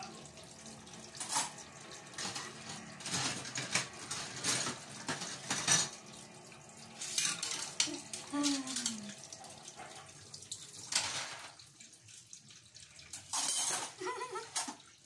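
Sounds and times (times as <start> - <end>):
faint running tap: 0.0 - 15.0
cutlery and dishes clinking in sink: 1.1 - 6.0, 6.9 - 11.8, 12.8 - 15.0.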